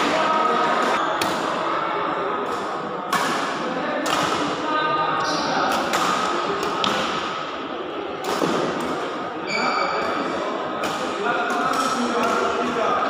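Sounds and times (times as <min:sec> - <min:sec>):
racket striking shuttlecock: 0:03.1 - 0:04.5
shoe squeak on court floor: 0:09.4 - 0:10.1.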